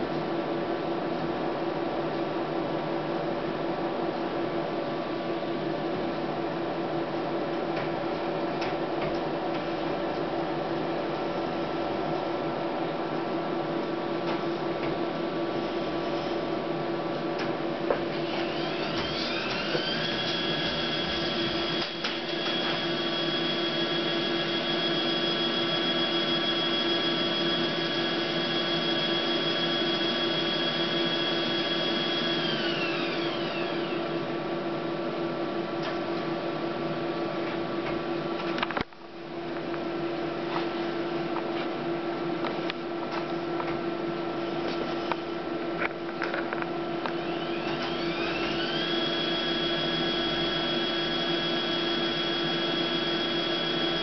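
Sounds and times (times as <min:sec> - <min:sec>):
steady motor hum: 0:02.6 - 0:54.0
motor whining rising in pitch: 0:18.2 - 0:34.2, 0:47.1 - 0:54.0.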